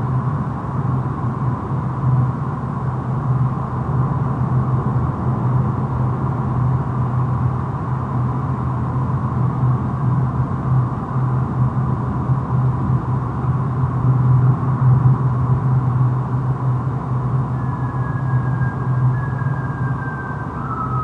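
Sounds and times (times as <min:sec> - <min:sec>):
low rumbling drone: 0:13.8 - 0:21.0.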